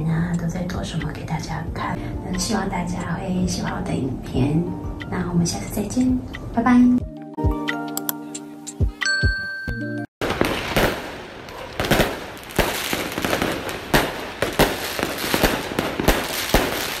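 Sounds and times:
fireworks bangs: 0:10.2 - 0:17.0
fireworks crackling: 0:10.2 - 0:17.0.

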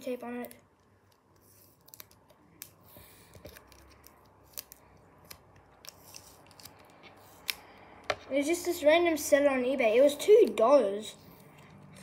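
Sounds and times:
tape peeling off plastic: 0:01.1 - 0:02.8, 0:03.4 - 0:07.6.

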